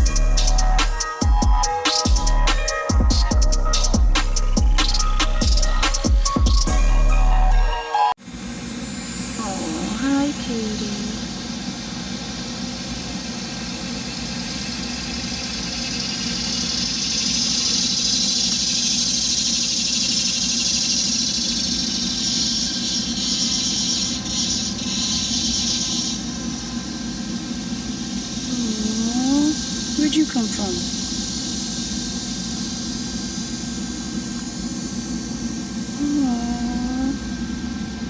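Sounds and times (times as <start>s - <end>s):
machine humming: 0.0s - 38.0s
high hiss: 8.2s - 38.0s.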